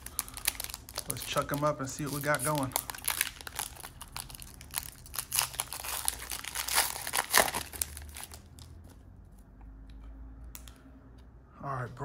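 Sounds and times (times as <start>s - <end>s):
foil wrapper tearing and crinkling: 0.0s - 8.8s.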